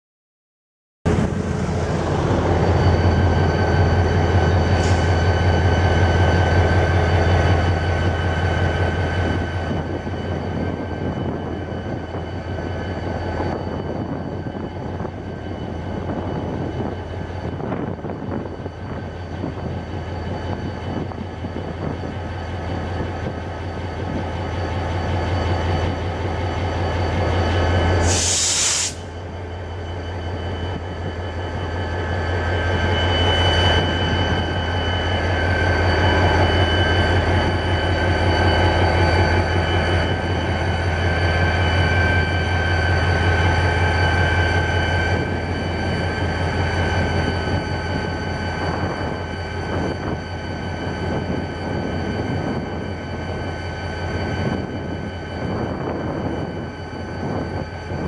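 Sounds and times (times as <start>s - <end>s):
diesel locomotive drone and whine: 1.1s - 58.0s
loud hiss of air: 28.0s - 29.2s.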